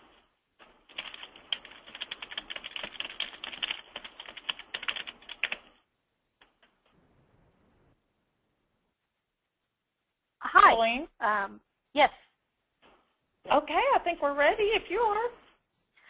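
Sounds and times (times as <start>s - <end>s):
computer keyboard typing: 0.6s - 5.8s.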